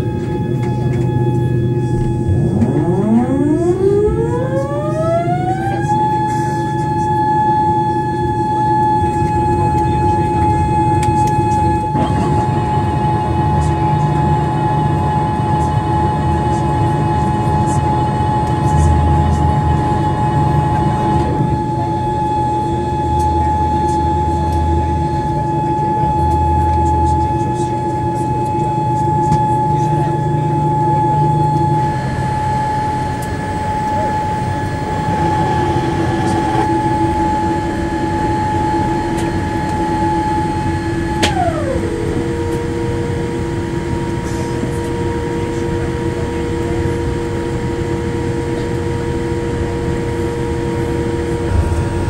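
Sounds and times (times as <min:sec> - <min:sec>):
high whine gliding down: 0:00.0 - 0:15.6, 0:50.5 - 0:52.0
steady hum of engines: 0:00.0 - 0:52.0.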